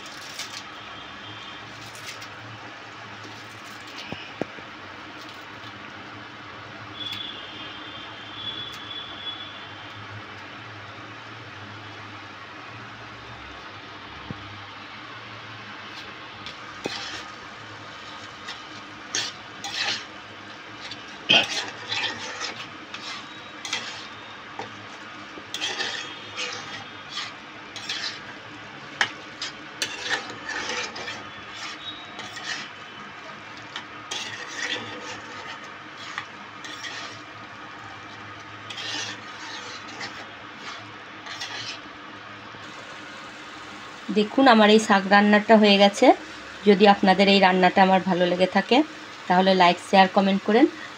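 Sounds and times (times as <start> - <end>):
spatula scraping a wok: 0.0 - 2.3, 3.3 - 4.4, 15.9 - 43.4.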